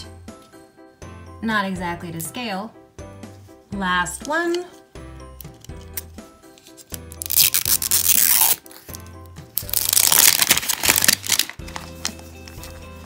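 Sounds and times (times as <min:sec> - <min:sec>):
background music: 0:00.0 - 0:13.0
plastic wrap tearing: 0:06.8 - 0:12.8.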